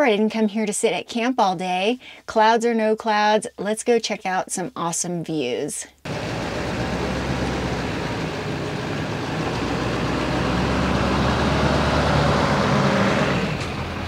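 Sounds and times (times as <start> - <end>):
truck engine running: 6.1 - 14.0.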